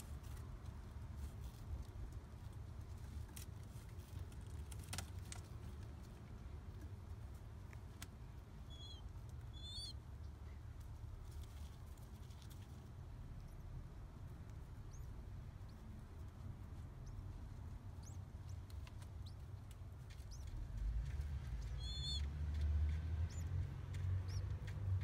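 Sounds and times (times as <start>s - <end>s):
faint low rumble: 0.0s - 25.0s
squab squeaky peeps: 8.7s - 10.0s, 17.9s - 19.5s, 20.1s - 20.6s, 21.6s - 22.3s.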